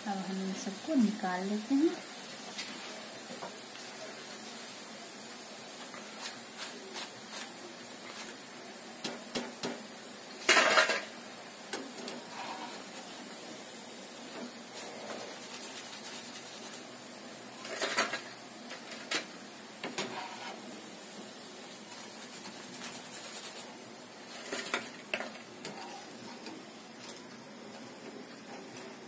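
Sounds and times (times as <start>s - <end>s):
oil frying hiss: 0.0s - 29.0s
metal spoon scraping a pan: 12.0s - 12.9s, 19.8s - 20.6s, 21.9s - 26.6s.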